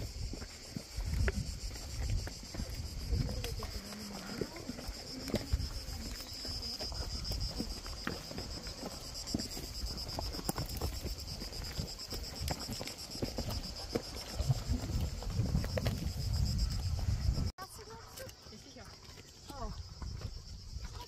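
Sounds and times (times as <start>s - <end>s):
wind rumble on microphone: 0.0s - 7.8s, 13.4s - 17.5s, 19.6s - 21.0s
cicadas droning: 0.0s - 21.0s.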